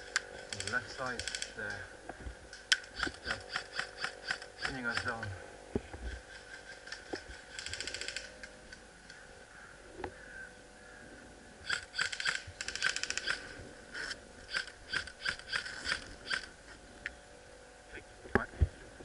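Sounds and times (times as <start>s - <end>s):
airsoft guns firing: 2.8s - 5.3s, 11.6s - 13.5s.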